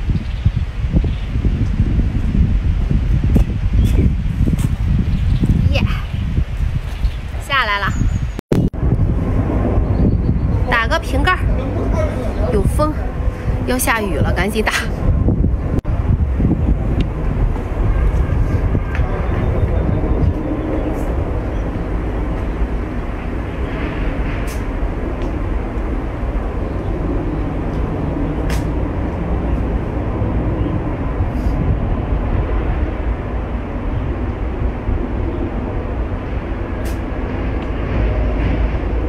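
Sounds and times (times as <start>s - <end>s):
wind buffeting microphone: 0.0s - 39.0s.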